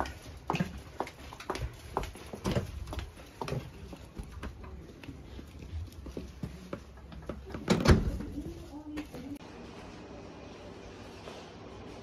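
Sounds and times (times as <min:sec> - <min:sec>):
footsteps in a corridor: 0:00.0 - 0:12.0.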